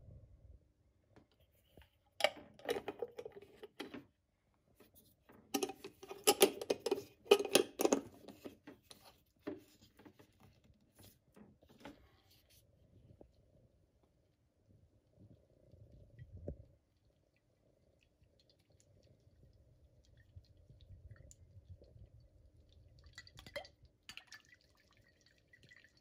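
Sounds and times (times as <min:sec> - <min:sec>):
jar lid twisting: 0:02.2 - 0:03.9, 0:05.6 - 0:08.4.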